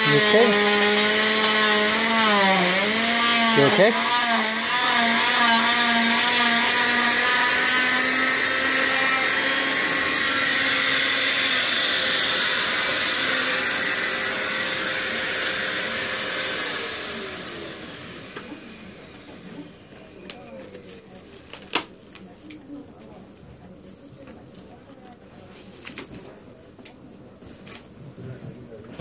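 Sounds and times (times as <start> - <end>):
motor winding down whine: 0.0 - 20.8
saw and vacuum running: 0.0 - 21.0.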